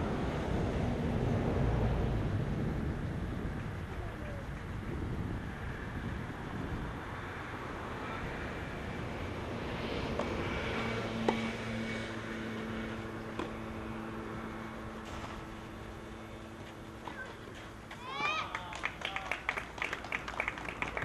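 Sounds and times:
outdoor background noise: 0:00.0 - 0:21.0
steady engine hum: 0:00.0 - 0:21.0
tennis ball struck by racket: 0:13.2 - 0:13.7.

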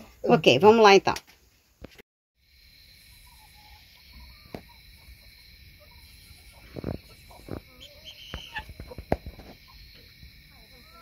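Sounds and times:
high insect chirr: 0:02.4 - 0:11.0
chickens murmuring softly: 0:03.0 - 0:11.0.

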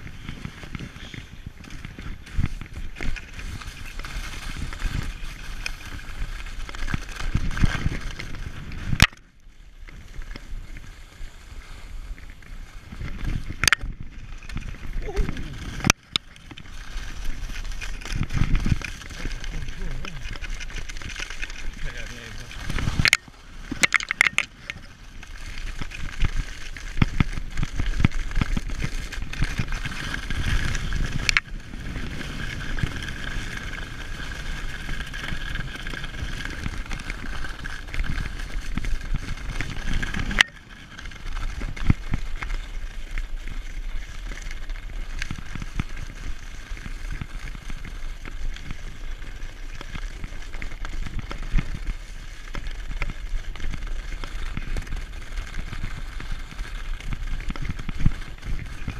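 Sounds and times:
skis scraping over snow: 0:00.0 - 0:58.9
wind rumbling on microphone: 0:00.0 - 0:58.9.

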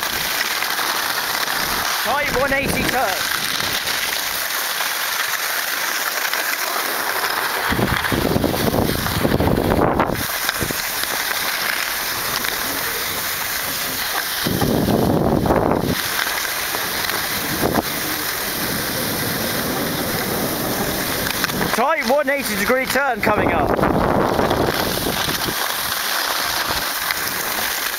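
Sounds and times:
rumbling: 0:00.0 - 0:27.9
skis hissing on packed snow: 0:00.0 - 0:27.9
wind on microphone: 0:07.6 - 0:10.9, 0:12.1 - 0:16.2, 0:16.9 - 0:21.8, 0:23.3 - 0:25.6.

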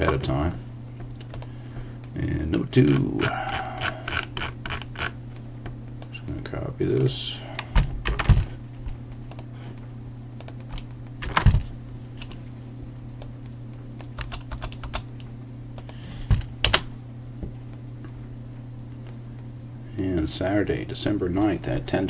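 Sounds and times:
typing on computer keyboard: 0:14.0 - 0:15.1.

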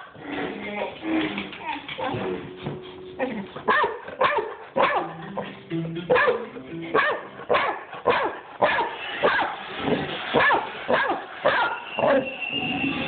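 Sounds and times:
held musical tones: 0:02.2 - 0:07.5
dog barking: 0:03.7 - 0:05.2, 0:06.1 - 0:06.4, 0:07.0 - 0:09.6, 0:10.4 - 0:12.3.

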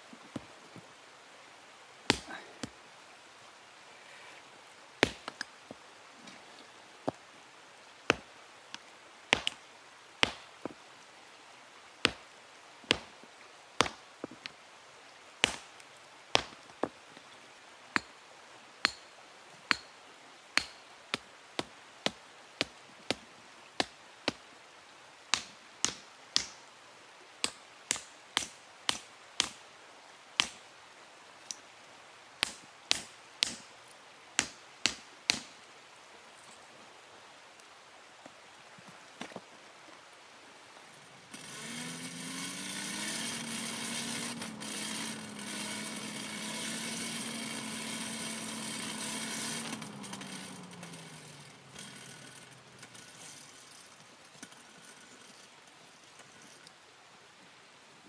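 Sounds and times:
hammer striking hot steel: 0:18.8 - 0:19.0, 0:20.6 - 0:20.8.

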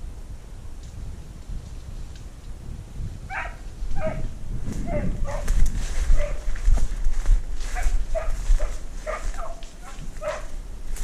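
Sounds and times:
rustling through brush: 0:00.8 - 0:11.0
dog barking: 0:03.3 - 0:05.5, 0:06.1 - 0:06.5, 0:07.7 - 0:10.6.

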